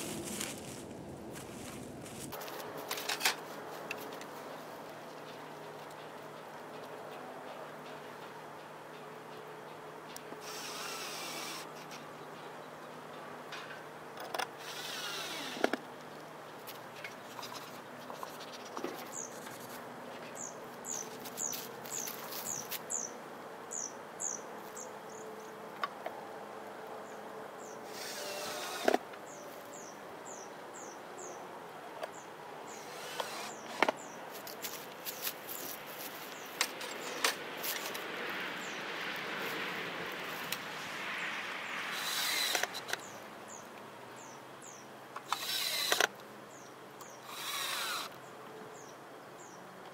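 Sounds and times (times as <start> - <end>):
cordless drill running: 10.4 - 11.6, 14.6 - 15.6, 27.9 - 29.0, 32.8 - 33.9, 41.9 - 42.8, 45.3 - 46.1, 47.3 - 48.1
bird chirping: 17.2 - 25.6, 40.8 - 49.7.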